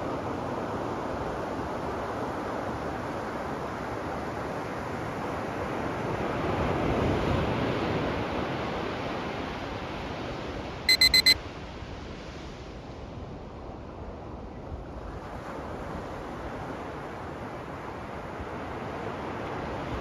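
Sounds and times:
timer alarm high beeps: 10.9s - 11.4s
ocean waves washing ashore: 15.0s - 20.0s.

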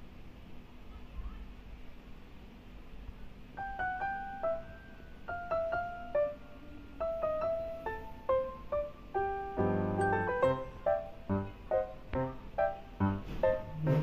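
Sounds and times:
keyboard melody: 3.6s - 14.0s.

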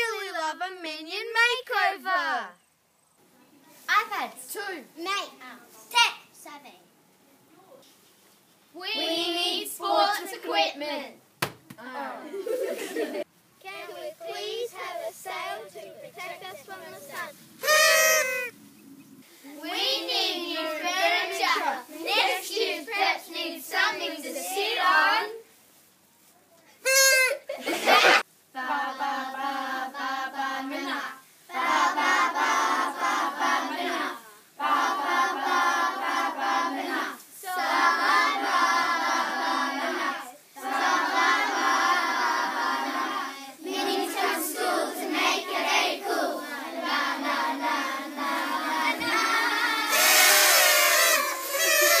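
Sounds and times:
children singing together: 27.7s - 52.0s
children cheering: 49.6s - 52.0s.

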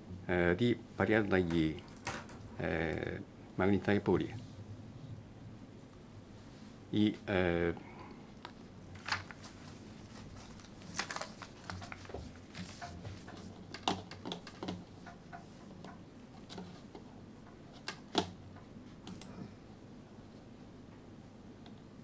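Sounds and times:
keyboard and mouse clicks: 12.7s - 16.7s, 17.7s - 18.4s, 19.0s - 19.4s.

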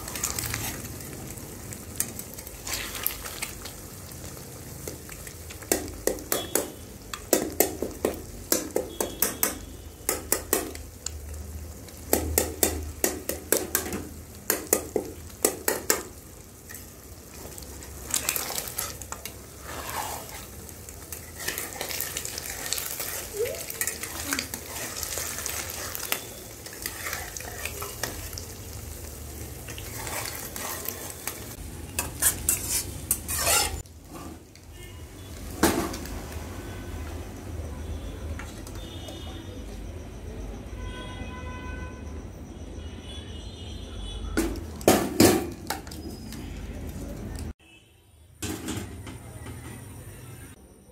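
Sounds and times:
eggs sizzling in a pan: 0.0s - 40.7s, 44.2s - 47.6s
metal spatula tapping and scraping pan: 4.8s - 11.0s, 12.0s - 28.4s, 29.7s - 34.2s.

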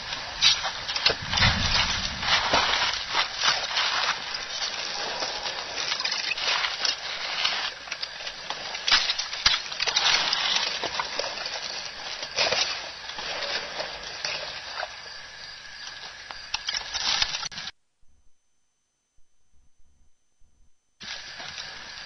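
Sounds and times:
twigs crackling and snapping: 0.0s - 15.0s, 15.7s - 17.7s
leaves rustling: 0.0s - 17.7s, 21.0s - 22.0s.

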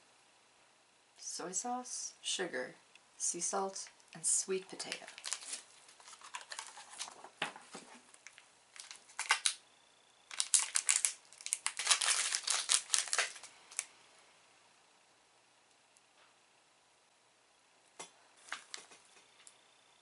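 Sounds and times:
plastic snack wrapper crinkling: 4.8s - 7.3s, 8.1s - 9.6s, 10.3s - 13.9s.

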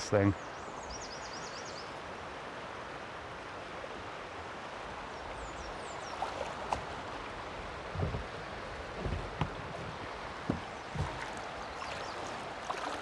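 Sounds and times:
river running over rocks: 0.0s - 13.0s
kayak paddle knocks and splashes: 6.2s - 7.0s, 7.9s - 13.0s.

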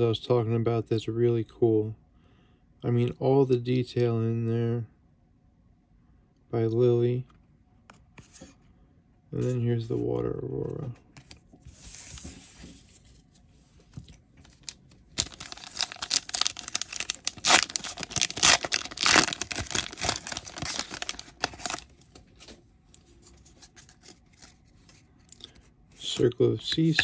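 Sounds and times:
handling cards: 9.4s - 27.0s
foil pack tearing and crinkling: 14.5s - 22.0s.

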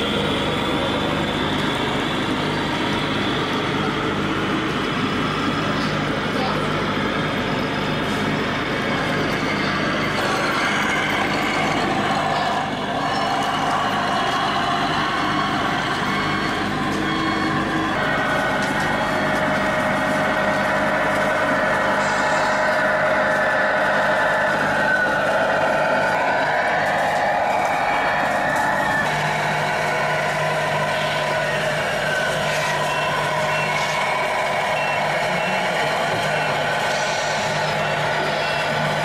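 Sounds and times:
simulated diesel truck engine: 0.0s - 39.0s.

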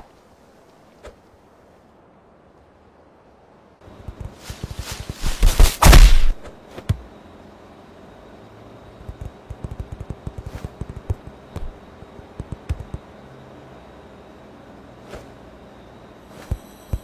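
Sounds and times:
faint steady hiss: 0.0s - 17.0s
soft low thumps and taps: 9.0s - 13.1s.

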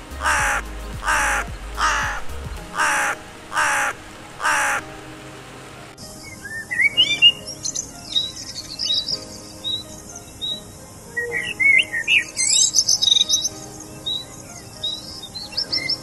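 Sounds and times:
crow cawing: 0.2s - 4.9s.

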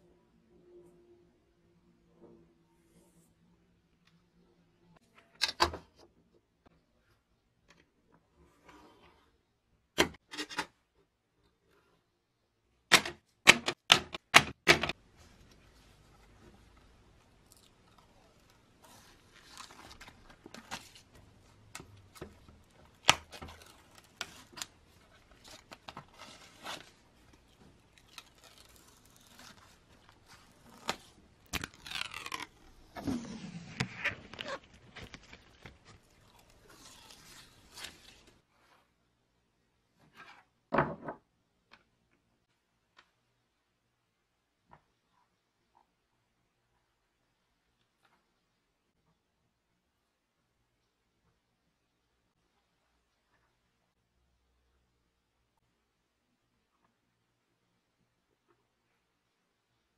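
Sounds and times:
protective film peeled off: 27.9s - 38.3s.

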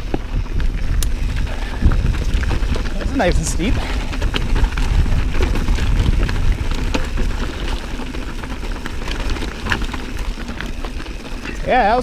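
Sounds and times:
wind on microphone: 0.0s - 8.3s
bike tyres rolling over rocks: 0.0s - 12.0s
gravel and bike rattling: 0.0s - 12.0s.

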